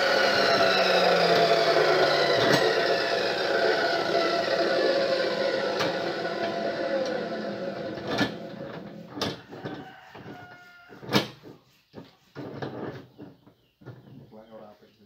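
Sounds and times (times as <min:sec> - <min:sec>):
cut-off saw spinning down: 0:00.0 - 0:09.2.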